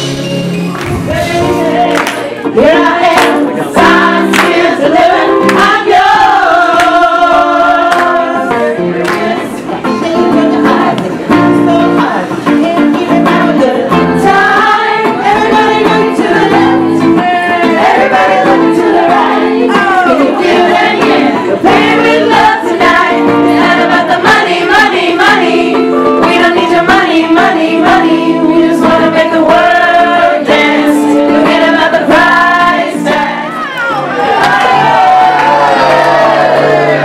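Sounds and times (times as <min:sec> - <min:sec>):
guitar accompaniment: 0:00.0 - 0:37.0
woman singing lead: 0:00.8 - 0:33.9
group singing worship song: 0:00.8 - 0:35.1.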